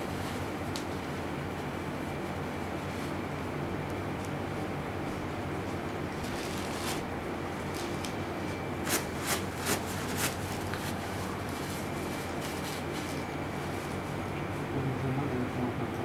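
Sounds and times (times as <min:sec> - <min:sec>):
low machine hum: 0:00.0 - 0:16.0
tissue and plastic rustling: 0:05.7 - 0:14.0.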